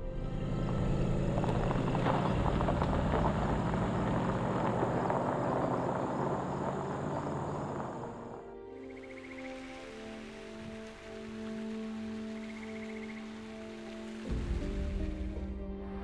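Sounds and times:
car engine pulling away: 0.0s - 8.6s
tyres crunching over gravel: 1.0s - 8.4s.

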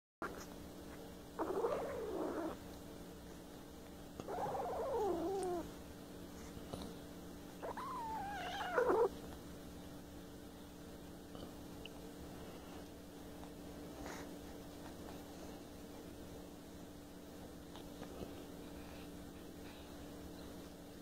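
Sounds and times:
kitten growling: 1.4s - 2.6s, 4.2s - 5.7s, 7.6s - 9.2s.

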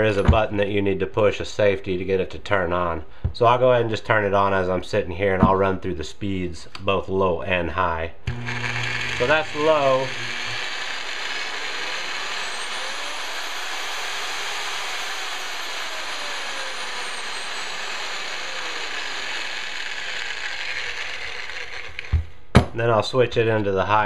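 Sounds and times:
electric mixer motor whir: 8.3s - 22.3s.

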